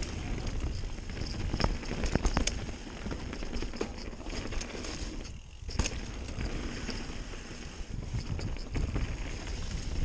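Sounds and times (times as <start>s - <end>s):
bike rattling: 0.0s - 10.0s
wind buffeting microphone: 7.8s - 10.0s.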